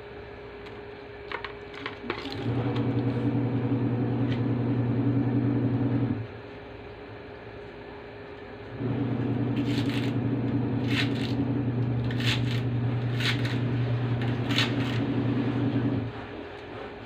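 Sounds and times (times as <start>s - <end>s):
low mechanical hum: 0.0s - 17.0s
knife cutting on cutting board: 9.6s - 10.2s, 10.8s - 11.4s, 12.0s - 15.2s.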